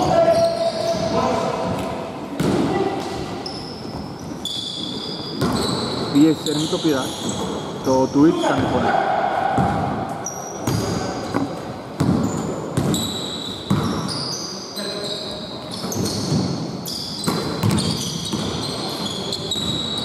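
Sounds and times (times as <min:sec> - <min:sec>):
basketball shoes squeaking: 0:00.0 - 0:08.9, 0:09.5 - 0:20.0
basketball bouncing on hardwood: 0:17.2 - 0:18.6.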